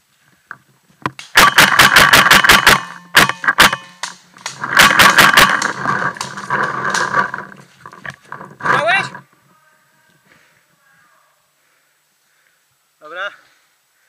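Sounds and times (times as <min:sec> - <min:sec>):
paintball marker firing: 0:01.1 - 0:07.1.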